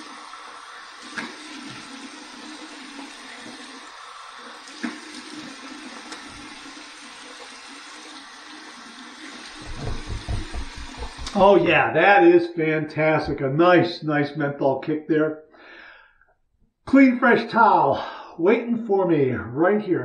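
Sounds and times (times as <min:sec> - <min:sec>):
water running from sink tap: 0:00.0 - 0:11.6
water splash: 0:09.5 - 0:11.5.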